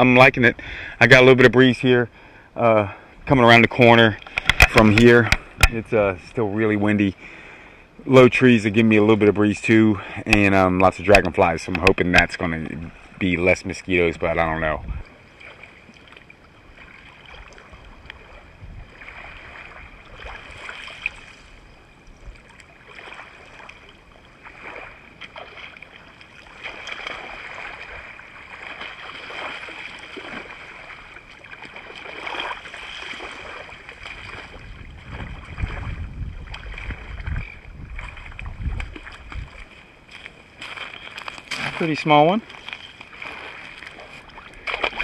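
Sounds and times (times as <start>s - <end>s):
small waves lapping: 9.6s - 45.0s
wind buffeting microphone: 12.7s - 15.1s, 17.6s - 20.4s, 33.4s - 40.2s.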